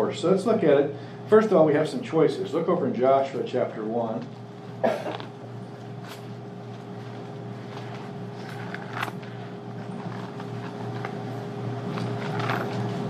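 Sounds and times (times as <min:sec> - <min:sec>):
low room hum: 0:00.0 - 0:13.0
soft rustles or clicks: 0:04.2 - 0:13.0.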